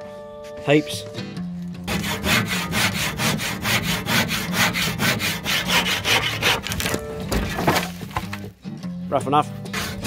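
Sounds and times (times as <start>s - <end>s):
handsaw cutting wood: 1.9s - 8.0s, 9.7s - 10.0s.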